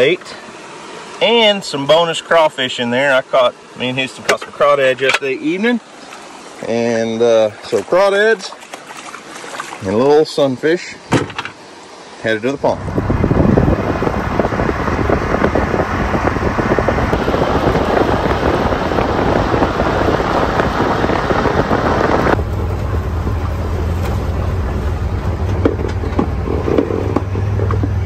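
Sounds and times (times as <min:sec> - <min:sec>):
vehicle engine running: 0:12.6 - 0:28.0
wind noise: 0:12.6 - 0:28.0.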